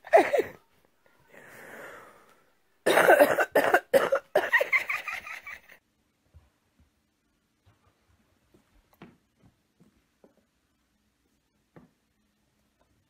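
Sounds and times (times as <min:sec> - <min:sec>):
person coughing: 0:00.0 - 0:00.6, 0:02.8 - 0:04.7.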